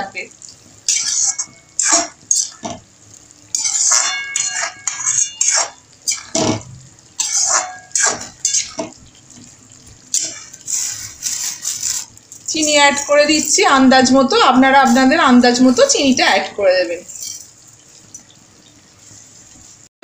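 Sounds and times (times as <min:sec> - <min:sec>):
metal spoon scraping metal pan: 0:00.9 - 0:02.6, 0:03.5 - 0:06.4, 0:07.2 - 0:08.8, 0:10.1 - 0:13.6.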